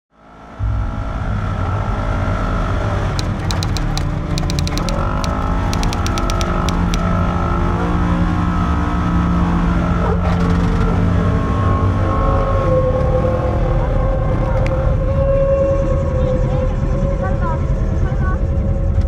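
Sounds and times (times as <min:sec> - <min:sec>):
sharp clicks: 0:03.2 - 0:07.1.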